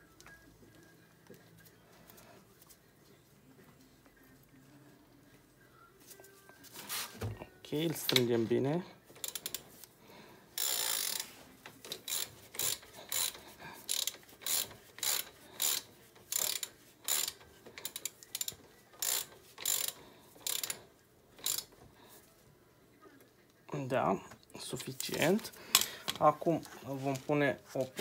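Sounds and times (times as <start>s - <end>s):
ratchet wrench clicking: 9.2s - 9.6s, 10.6s - 20.8s, 21.4s - 21.8s.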